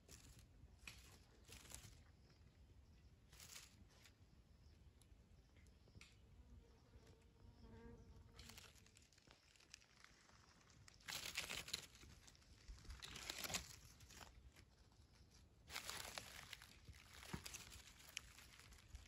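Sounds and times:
crinkly rustling: 0:00.1 - 0:02.1, 0:03.3 - 0:04.2, 0:08.4 - 0:19.0.

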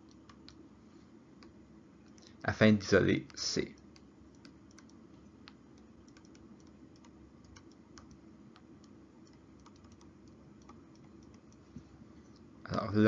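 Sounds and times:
stylus tapping on tablet screen: 0:00.0 - 0:00.6, 0:03.2 - 0:11.9
low room hum: 0:00.0 - 0:13.0.

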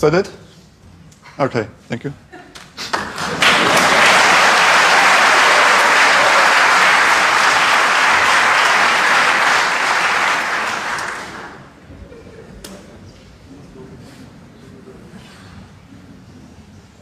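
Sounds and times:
audience applauding: 0:02.9 - 0:11.8.

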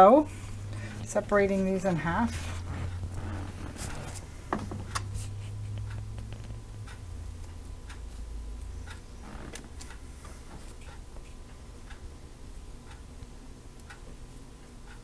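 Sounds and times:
low steady hum: 0:00.0 - 0:15.0
light ticks and clicks: 0:04.8 - 0:12.0, 0:12.8 - 0:15.0.

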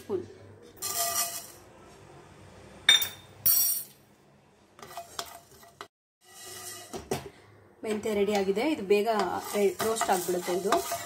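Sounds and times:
scraping in a frying pan: 0:00.8 - 0:01.9, 0:04.7 - 0:11.0
seeds stirred across pan: 0:08.3 - 0:11.0.

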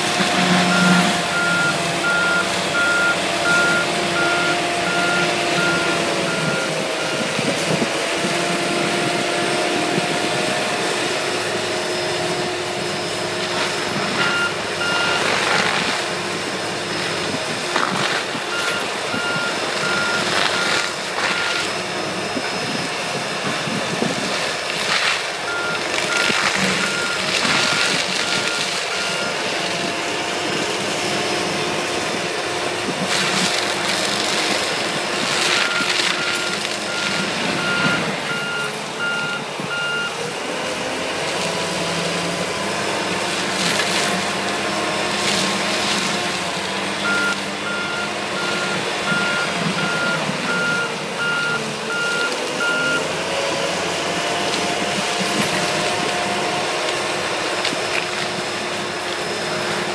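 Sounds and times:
diesel engine running hard: 0:00.0 - 0:59.9
backup alarm beeping: 0:00.4 - 0:07.5, 0:14.1 - 0:15.3, 0:25.5 - 0:29.4, 0:35.6 - 0:40.2, 0:47.0 - 0:53.1
wood cracking crunches: 0:15.1 - 0:16.1, 0:17.7 - 0:18.6, 0:24.3 - 0:29.0, 0:33.0 - 0:38.0.

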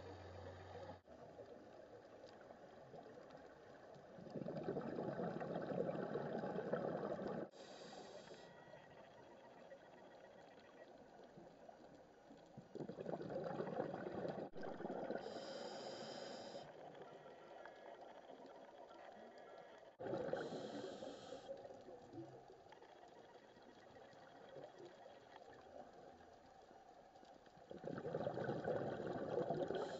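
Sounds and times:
low underwater hiss: 0:00.0 - 0:29.9
diver breathing through regulator: 0:07.4 - 0:08.5, 0:15.2 - 0:16.8, 0:20.3 - 0:21.6.

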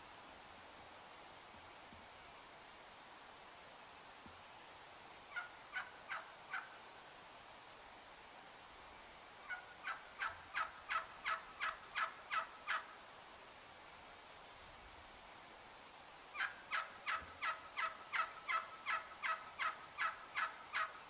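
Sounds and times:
wild turkey yelping: 0:05.3 - 0:06.7, 0:09.4 - 0:12.9, 0:16.3 - 0:21.0.

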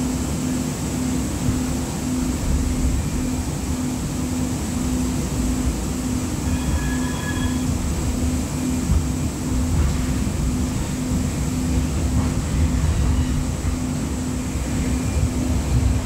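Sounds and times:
light rail car rumbling on rails: 0:00.0 - 0:16.0
faint high squeal: 0:06.4 - 0:07.8.

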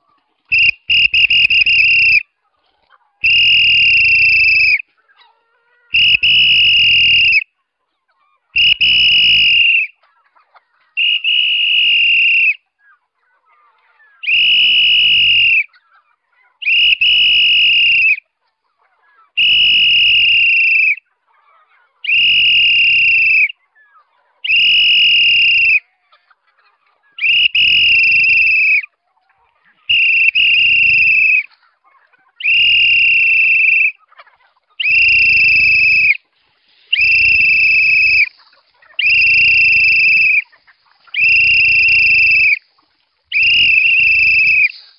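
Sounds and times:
person whistling high note: 0:00.5 - 0:02.2, 0:03.2 - 0:04.8, 0:06.0 - 0:07.4, 0:08.6 - 0:09.9, 0:11.0 - 0:12.6, 0:14.3 - 0:15.7, 0:19.4 - 0:21.0, 0:27.2 - 0:28.8, 0:29.9 - 0:31.5, 0:32.4 - 0:33.9, 0:34.8 - 0:36.2, 0:36.9 - 0:38.3, 0:39.0 - 0:40.4, 0:41.2 - 0:42.6, 0:43.3 - 0:44.8.

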